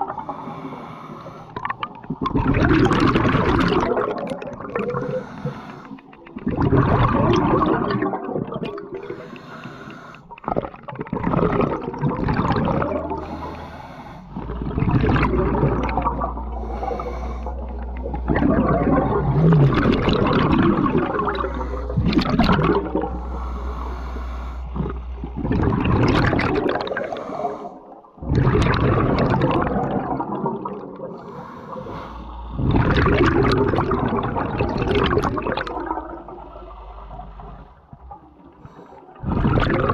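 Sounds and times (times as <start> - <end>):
exhaled bubbles gurgling: 0.0 - 39.9
regulator hissing inhalation: 0.2 - 1.6, 5.0 - 6.0, 9.0 - 10.3, 13.2 - 14.4, 16.4 - 17.8, 23.2 - 25.0, 31.1 - 32.5.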